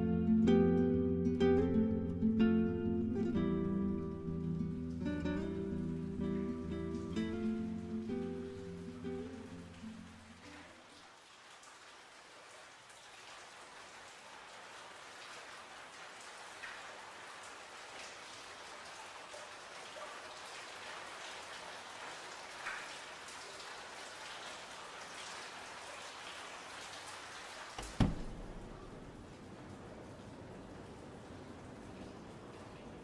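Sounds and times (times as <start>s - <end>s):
rain pattering: 0.0s - 33.0s
sharp thump: 27.8s - 29.0s.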